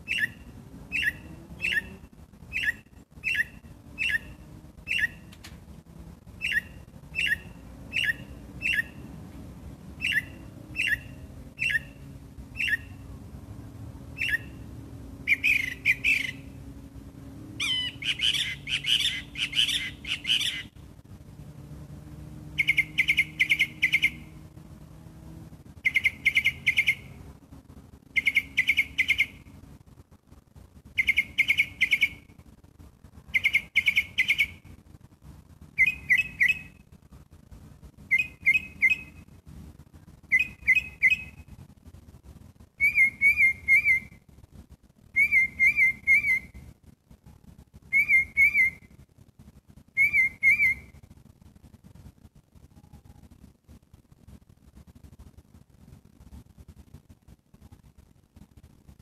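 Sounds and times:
songbird whistling phrases: 0.0 - 5.3, 6.4 - 9.0, 10.0 - 12.0, 12.6 - 13.0, 14.2 - 14.6, 15.2 - 16.5, 17.6 - 20.7, 22.6 - 24.2, 25.8 - 27.1, 28.2 - 29.4, 31.0 - 32.3, 33.3 - 34.6, 35.8 - 36.8, 38.1 - 39.2, 40.3 - 41.4, 42.8 - 44.2, 45.1 - 46.6, 47.9 - 48.9, 50.0 - 51.0.

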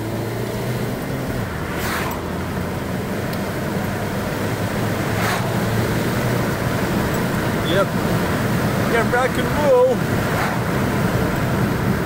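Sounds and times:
car cabin road and engine hum: 0.0 - 12.0
brief swishes: 1.7 - 2.2, 5.2 - 5.7.

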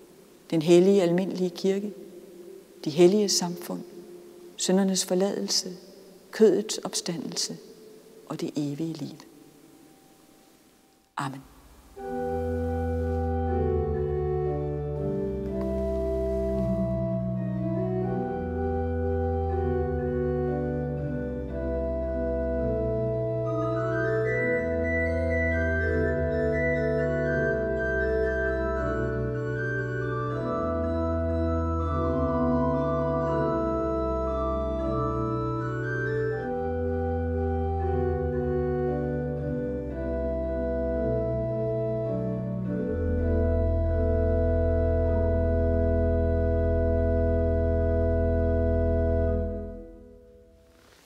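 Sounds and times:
church organ chords: 11.5 - 50.8.

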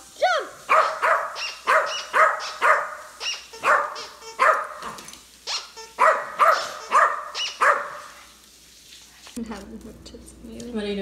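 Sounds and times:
small dog barking: 0.6 - 8.2.

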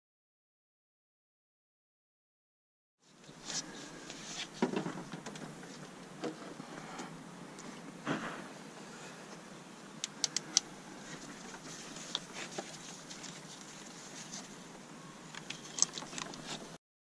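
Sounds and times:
faint steady hiss: 3.0 - 16.8
small parts and tools clicking: 10.0 - 10.7, 15.3 - 16.7.

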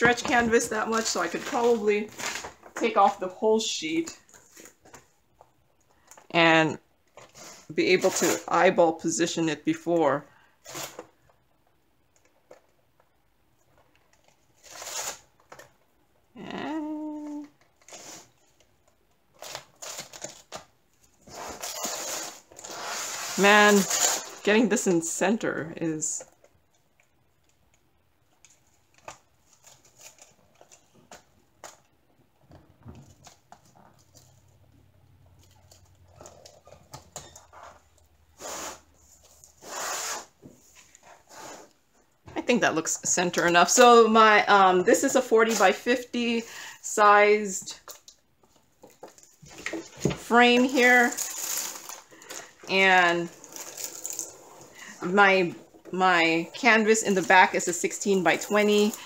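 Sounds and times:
plastic sheet rustling: 0.0 - 3.3, 49.2 - 55.6
plastic cover rustling: 0.0 - 3.4, 28.3 - 41.3, 47.7 - 59.0.

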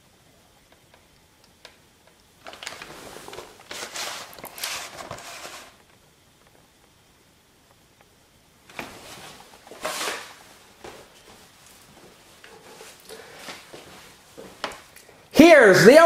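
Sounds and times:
tape case scraping and rustling: 2.4 - 5.8, 8.8 - 10.4.

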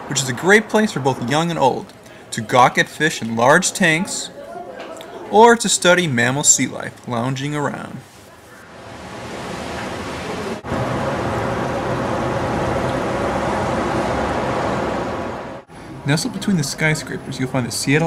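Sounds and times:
city traffic noise: 0.0 - 4.4, 8.0 - 18.0.

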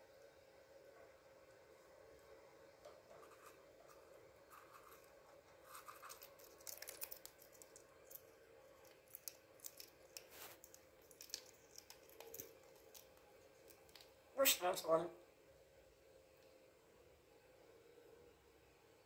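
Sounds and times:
faint room hum: 0.0 - 19.0
parrot beak scratching cage bars: 3.1 - 7.7.

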